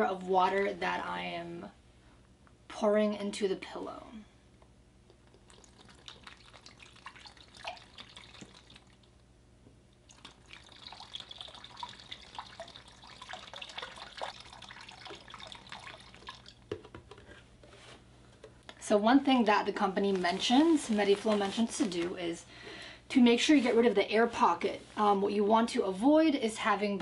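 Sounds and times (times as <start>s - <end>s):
water dripping and splashing: 5.1s - 9.2s, 9.9s - 16.7s
water pouring from plastic bottle: 5.4s - 9.1s, 10.1s - 16.7s.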